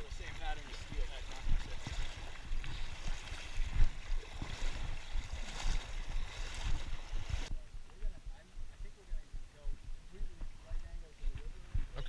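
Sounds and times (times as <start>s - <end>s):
river water splashing: 0.0s - 7.5s.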